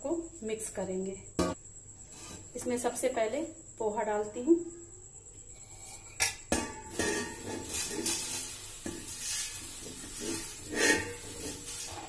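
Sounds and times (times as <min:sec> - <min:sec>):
dry flakes rustling: 0:07.0 - 0:12.0.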